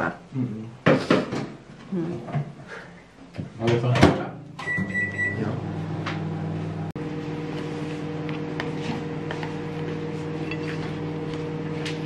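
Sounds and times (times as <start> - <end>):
microwave oven humming: 4.4 - 12.0
high beep: 4.6 - 5.5.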